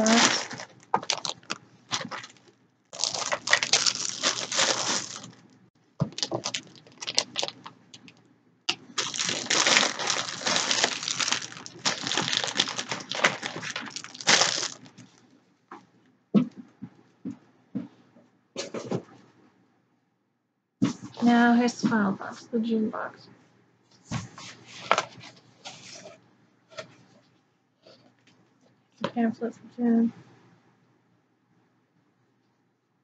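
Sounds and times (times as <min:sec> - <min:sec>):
plastic wrappers crinkling: 0:00.0 - 0:15.2.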